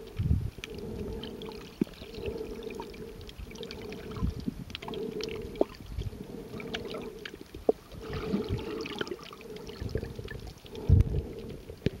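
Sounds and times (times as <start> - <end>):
muffled underwater water movement: 0.0 - 12.0.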